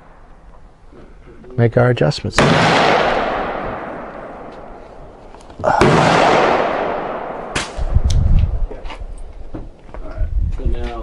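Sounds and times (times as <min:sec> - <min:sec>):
echoing gunshots: 0:02.4 - 0:08.0
low rumbling: 0:02.4 - 0:11.0.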